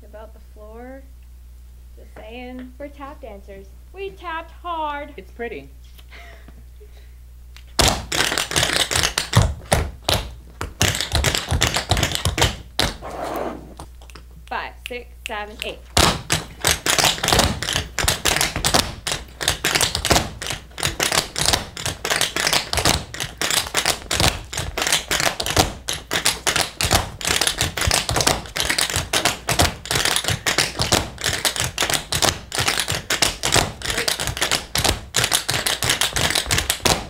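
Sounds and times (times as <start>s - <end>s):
tap shoes clicking on floor: 7.7s - 13.0s, 14.9s - 37.0s.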